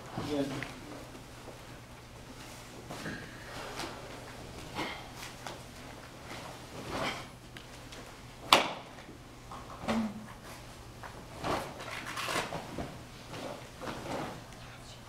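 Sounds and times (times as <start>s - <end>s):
uniform swishes and snaps: 11.4s - 14.4s.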